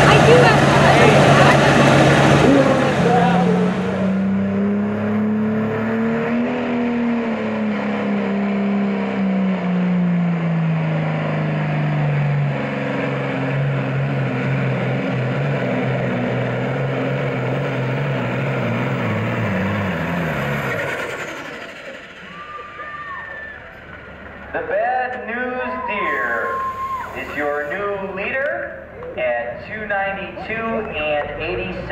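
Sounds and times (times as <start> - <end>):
tractor diesel engine under load: 0.0 - 31.9.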